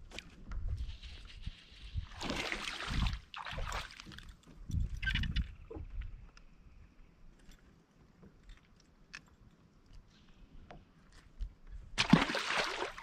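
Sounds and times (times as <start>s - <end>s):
fish splashing into water: 12.0s - 13.0s.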